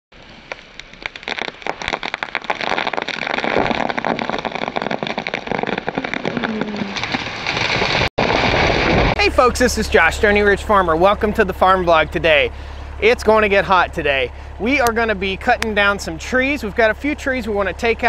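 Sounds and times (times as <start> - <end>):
tree wood cracking and popping: 0.2 - 10.4, 14.5 - 16.7.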